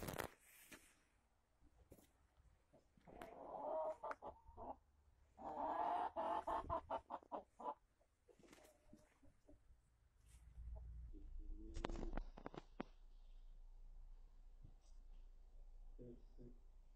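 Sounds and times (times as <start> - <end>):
chickens clucking: 2.7 - 9.6.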